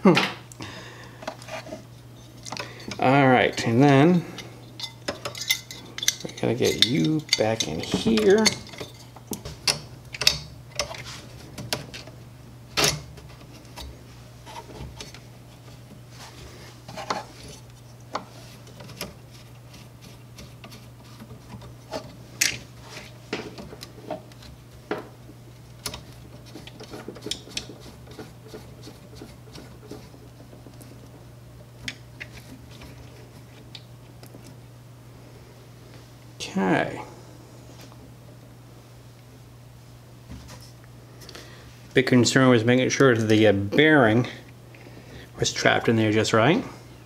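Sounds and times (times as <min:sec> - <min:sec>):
steady low hum: 0:00.0 - 0:47.0.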